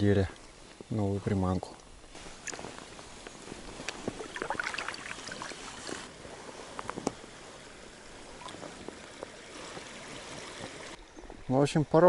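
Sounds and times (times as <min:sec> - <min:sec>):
water lapping and splashing: 0:04.0 - 0:06.1, 0:07.2 - 0:11.0.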